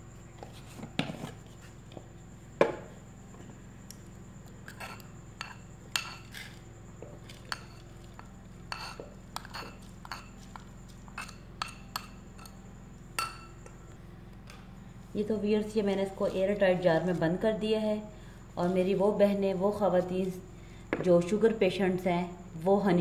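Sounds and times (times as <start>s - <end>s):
metal spoon clinking on ceramic and glass: 7.5s - 10.4s, 11.2s - 12.6s, 13.2s - 13.7s.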